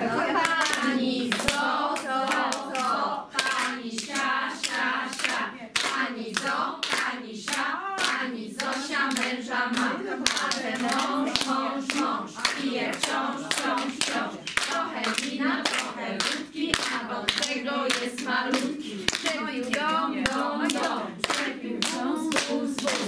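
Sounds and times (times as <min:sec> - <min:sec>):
women singing together: 0:00.0 - 0:23.0
sharp hand claps: 0:00.4 - 0:23.0.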